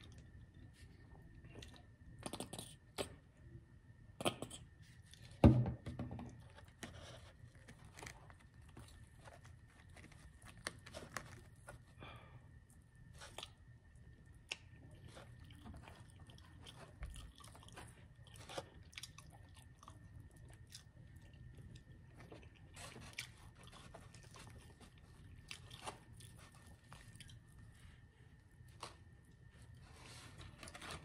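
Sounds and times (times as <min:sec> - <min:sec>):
person chewing crunchy food: 0:06.4 - 0:12.0, 0:12.6 - 0:31.0.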